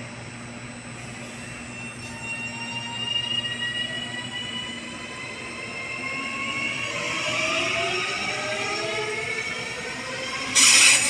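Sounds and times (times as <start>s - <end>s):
electric train drive whine: 0.0s - 11.0s
train wheel and rail noise: 0.0s - 11.0s.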